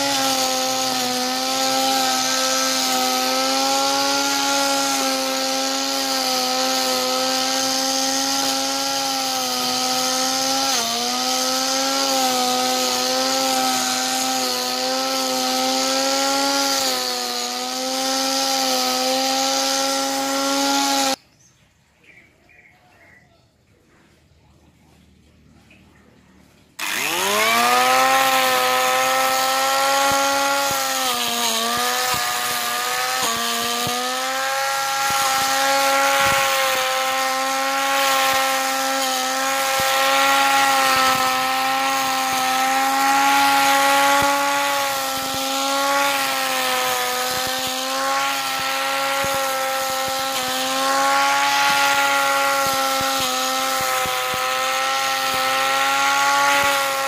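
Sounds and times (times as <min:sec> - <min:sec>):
angle grinder whining: 0:00.0 - 0:21.2, 0:26.8 - 0:57.0.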